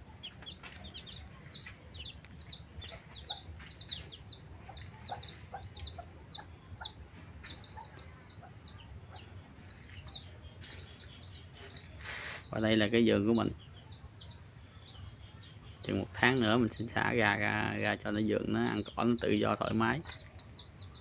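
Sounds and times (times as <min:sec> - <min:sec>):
chicks peeping: 0:00.0 - 0:21.0.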